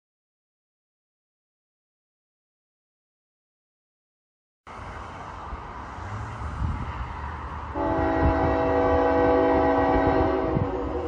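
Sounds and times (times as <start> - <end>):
freight train rumble: 4.7 - 11.0
locomotive air horn chord: 7.7 - 11.0.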